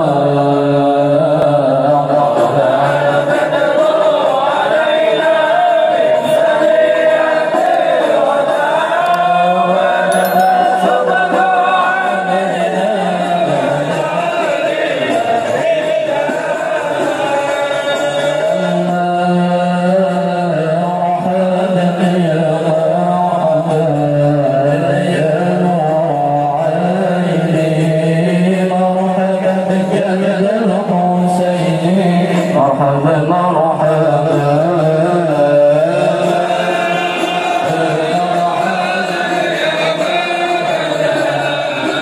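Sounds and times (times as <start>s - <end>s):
men chanting together: 0.0s - 10.1s, 11.0s - 26.0s, 33.8s - 42.0s.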